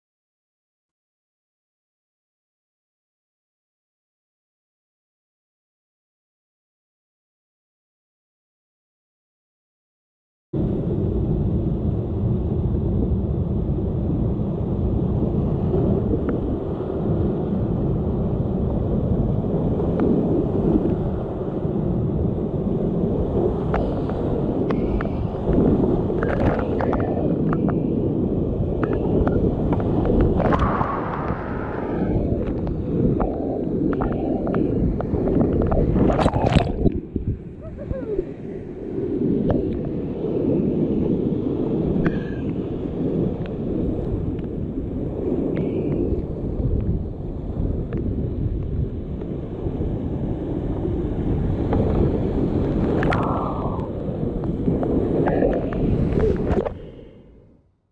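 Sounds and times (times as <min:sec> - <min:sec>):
water buffeting microphone: 0:10.6 - 0:57.6
water splash: 0:35.0 - 0:37.4.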